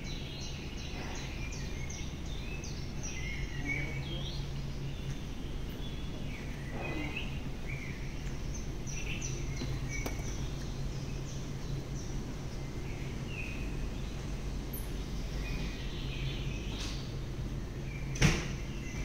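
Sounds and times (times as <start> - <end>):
low hum of ship machinery: 0.0 - 19.0.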